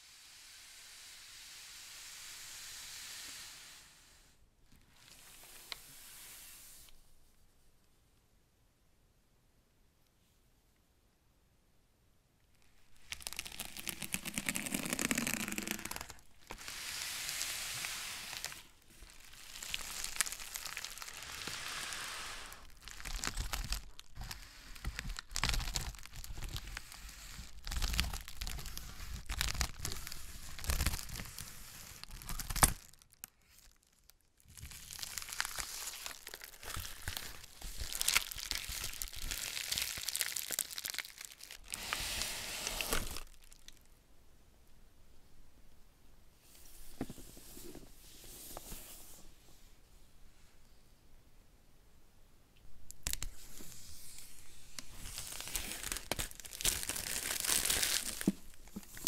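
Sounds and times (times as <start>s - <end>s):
plastic crinkling and rustling: 12.6s - 43.9s, 52.9s - 59.0s.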